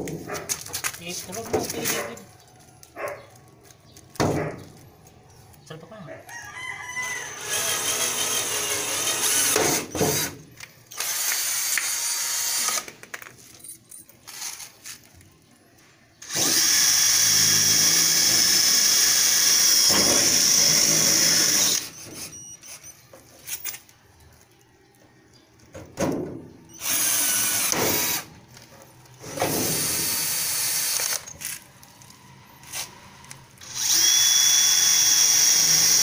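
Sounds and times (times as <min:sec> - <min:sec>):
drill whining through sheet metal: 0:07.1 - 0:12.8, 0:16.2 - 0:22.8, 0:26.7 - 0:28.3, 0:29.2 - 0:31.3, 0:33.6 - 0:36.0
drill setting rivets: 0:26.7 - 0:28.3.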